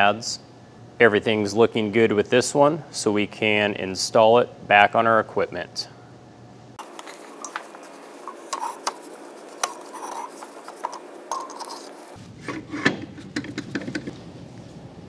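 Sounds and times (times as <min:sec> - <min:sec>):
metal scraping: 0:06.8 - 0:13.2.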